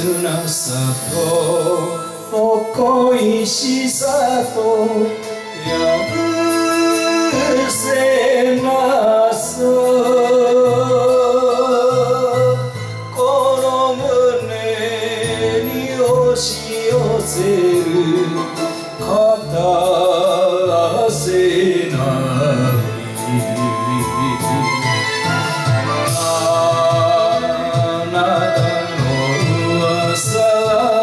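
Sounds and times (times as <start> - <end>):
karaoke backing track: 0.0 - 31.0
man singing with vibrato: 0.0 - 31.0.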